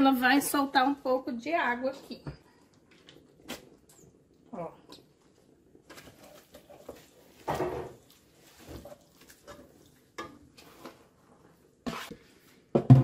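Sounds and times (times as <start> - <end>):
wooden spoon stirring in sauce: 6.1 - 12.4.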